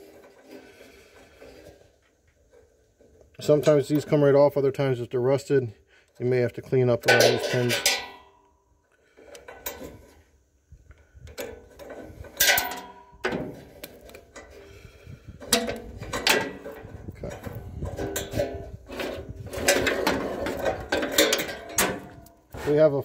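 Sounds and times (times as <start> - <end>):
metal clicks and knocks: 11.3 - 14.5, 15.4 - 22.5
metal chain clinking and rattling: 12.2 - 13.1.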